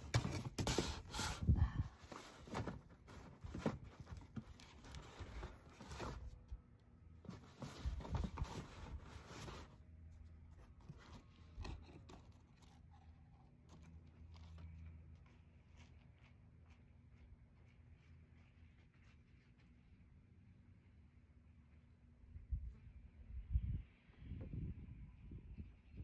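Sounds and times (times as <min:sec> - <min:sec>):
cardboard rustling and scraping: 0:00.0 - 0:16.4
wind on microphone: 0:01.3 - 0:02.0, 0:22.4 - 0:26.0
faint low hum: 0:01.4 - 0:26.0.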